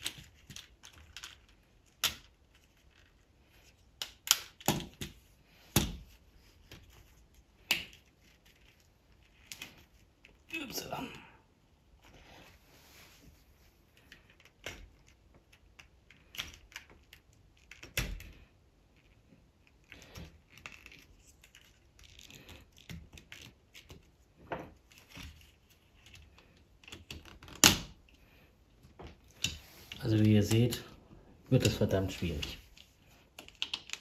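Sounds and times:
plastic bricks clicking and rattling: 0.0s - 5.2s, 31.5s - 34.0s.

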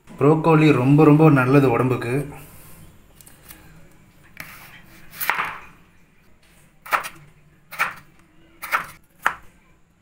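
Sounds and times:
knife chopping on wooden board: 5.2s - 5.6s, 6.8s - 9.4s.

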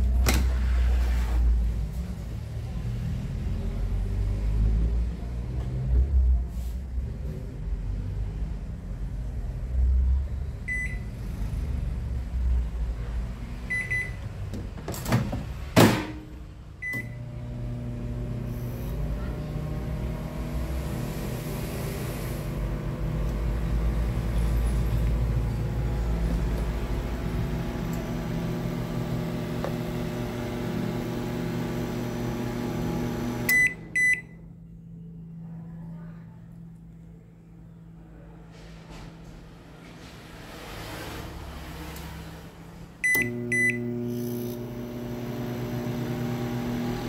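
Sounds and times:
microwave keypad beeps: 10.7s - 11.1s, 13.7s - 14.2s, 16.8s - 17.2s, 33.5s - 34.4s, 43.0s - 43.9s
microwave oven humming: 16.8s - 34.7s, 43.0s - 47.0s.

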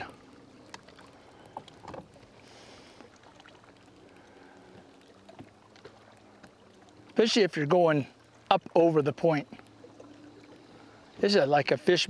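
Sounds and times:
water lapping against hull: 0.0s - 12.0s
light ticks: 0.6s - 2.3s, 9.4s - 11.3s.

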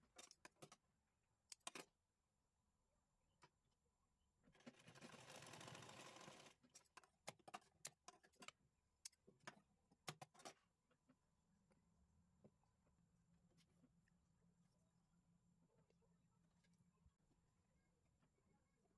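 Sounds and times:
sewing machine rattling: 4.6s - 6.6s.

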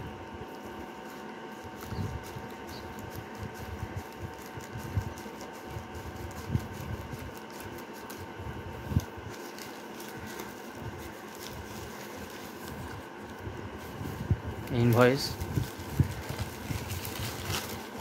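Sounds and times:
plastic bag crinkling: 14.7s - 18.0s.

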